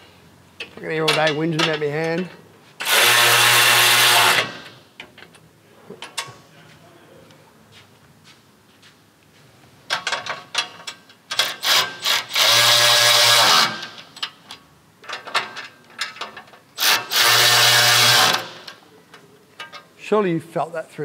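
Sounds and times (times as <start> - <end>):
electric ratchet running: 2.8 - 4.8, 11.4 - 14.1, 16.8 - 18.7
light metallic clicks and rattles: 9.9 - 11.6, 14.1 - 16.7, 18.6 - 20.0.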